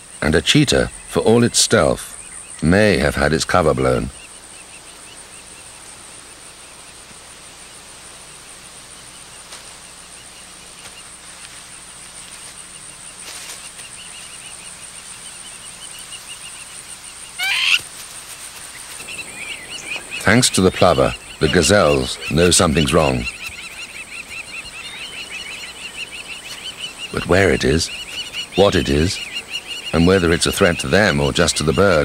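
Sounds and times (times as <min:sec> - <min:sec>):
faint chirping: 0:00.0 - 0:32.0
high-pitched insect drone: 0:11.0 - 0:32.0
bird alarm squawk: 0:14.0 - 0:17.8, 0:18.8 - 0:32.0.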